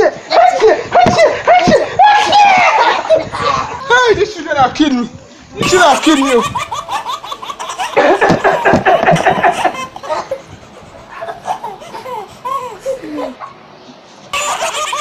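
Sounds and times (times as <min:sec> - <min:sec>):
person laughing: 0:05.6 - 0:13.4.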